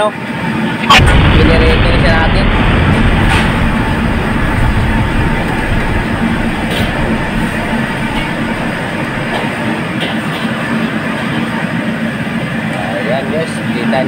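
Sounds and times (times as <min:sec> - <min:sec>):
gas burner roaring: 0:00.9 - 0:11.6.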